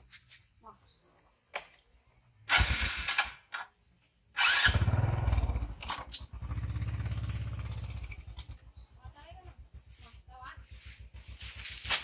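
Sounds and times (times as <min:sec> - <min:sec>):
motor scooter engine starting: 0:02.4 - 0:03.7, 0:04.3 - 0:10.0.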